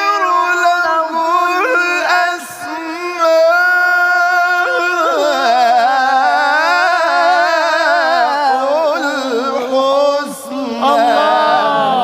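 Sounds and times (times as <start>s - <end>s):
man chanting melodically: 0.0s - 12.0s.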